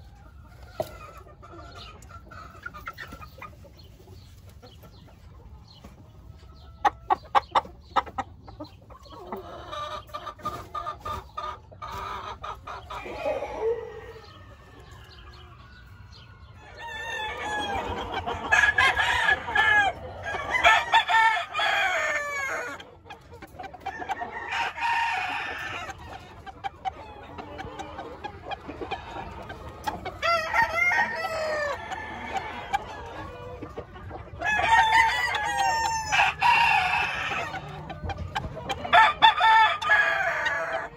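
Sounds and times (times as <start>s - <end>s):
chickens clucking: 0.0s - 40.9s
roosters crowing: 10.7s - 23.0s, 23.6s - 40.9s.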